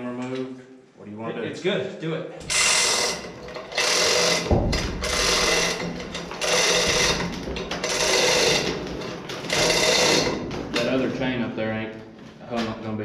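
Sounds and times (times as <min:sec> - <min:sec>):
ratchet pawl clicks clattering: 0:02.5 - 0:10.4.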